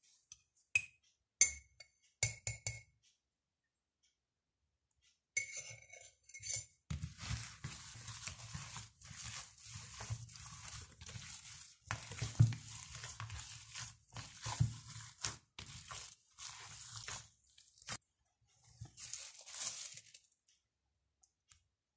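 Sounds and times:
hands kneading raw minced meat: 6.9s - 18.0s, 18.8s - 20.5s.

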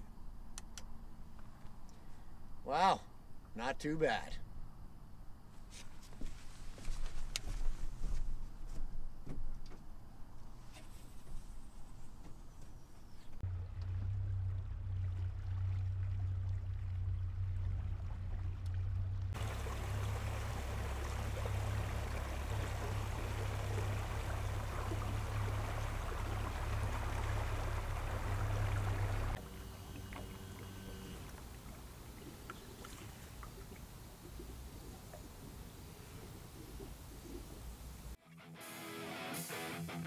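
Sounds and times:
boat motor humming: 13.4s - 38.2s
rushing water and wind: 19.3s - 29.4s.

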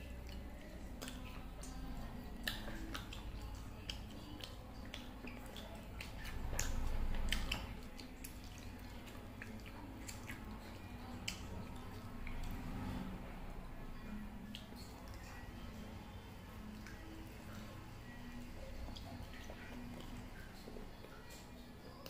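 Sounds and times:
wet chewing: 0.0s - 22.0s
lip-smacking clicks: 0.2s - 12.6s.

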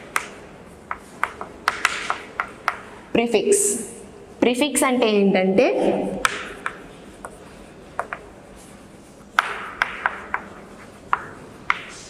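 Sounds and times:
chalk tapping on chalkboard: 0.0s - 2.9s, 6.2s - 12.0s
chalk scratching: 6.3s - 12.0s.

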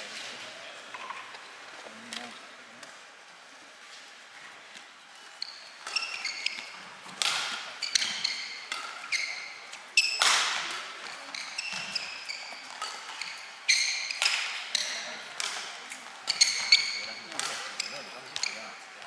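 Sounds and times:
shoes squeaking on court: 4.7s - 19.0s
racket hitting shuttlecock: 5.8s - 18.6s.

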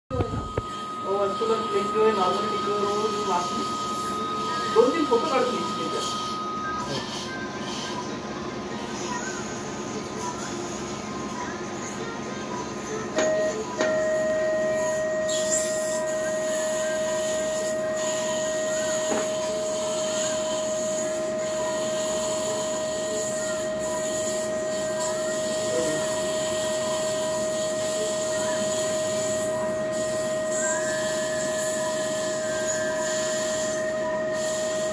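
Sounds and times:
steady electronic tone: 0.1s - 7.9s.

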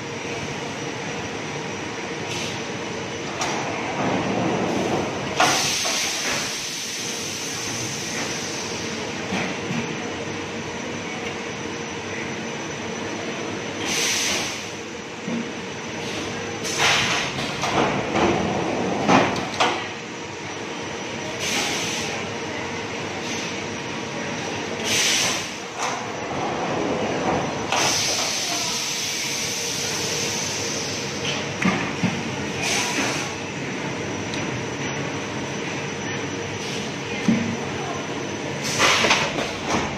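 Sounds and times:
machine hissing: 4.7s - 9.0s, 21.3s - 22.3s, 24.8s - 25.9s, 27.6s - 31.4s, 32.5s - 33.4s.

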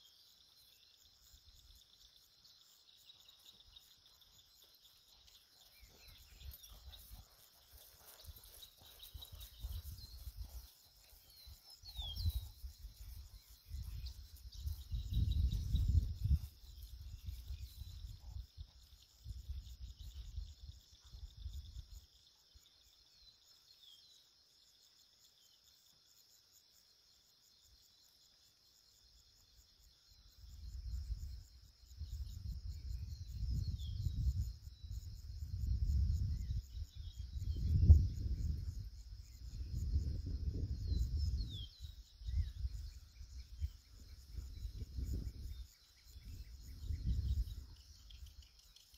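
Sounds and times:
insects chirping: 0.0s - 48.9s
wind rumbling on the microphone: 8.0s - 22.0s, 30.2s - 48.9s.

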